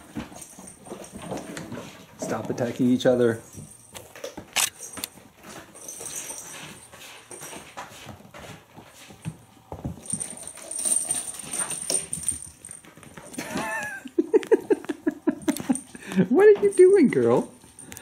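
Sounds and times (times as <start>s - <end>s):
paws scuffling on wooden floor: 0.0s - 13.6s.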